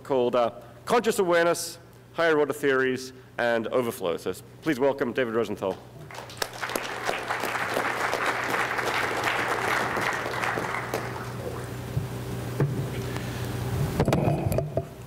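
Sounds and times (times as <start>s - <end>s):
low steady hum: 0.0s - 15.0s
audience applauding: 6.1s - 11.8s.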